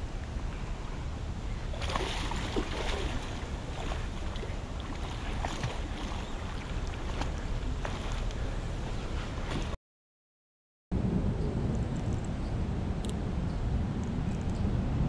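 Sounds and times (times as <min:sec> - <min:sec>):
wind rumble on microphone: 0:00.0 - 0:09.8, 0:10.9 - 0:15.0
river water rushing: 0:01.4 - 0:09.7.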